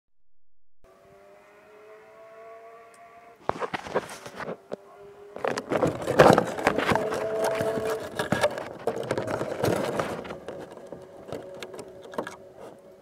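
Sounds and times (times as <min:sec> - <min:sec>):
multi-tone hum rising in pitch: 0:00.8 - 0:05.8.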